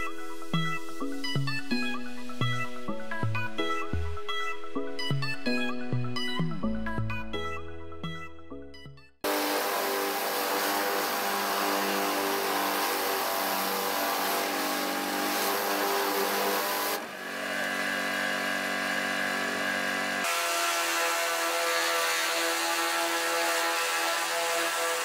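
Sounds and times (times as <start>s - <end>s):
pressure washer machine hum: 9.2s - 21.7s
water spray hissing: 9.3s - 17.0s.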